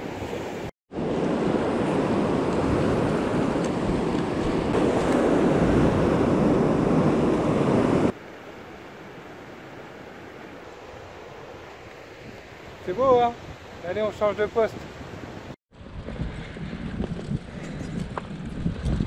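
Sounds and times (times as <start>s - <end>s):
gentle wash of waves: 0.0s - 15.6s
wind buffeting microphone: 1.0s - 8.2s, 15.0s - 19.0s.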